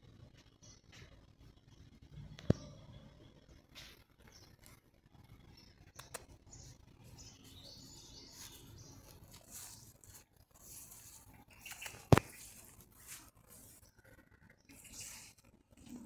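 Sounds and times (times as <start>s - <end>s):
small clicks: 5.8s - 6.5s, 11.5s - 12.4s
camera handling rustle: 10.8s - 13.3s.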